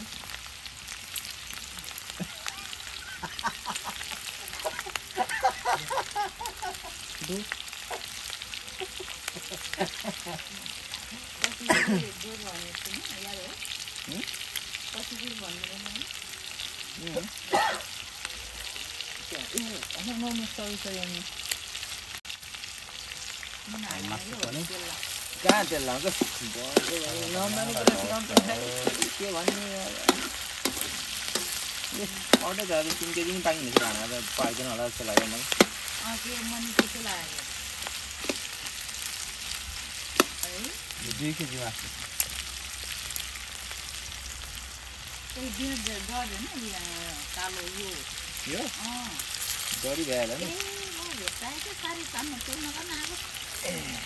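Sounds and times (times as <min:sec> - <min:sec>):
food sizzling in a pan: 0:00.0 - 0:54.0
utensil scraping a pan: 0:24.3 - 0:37.0.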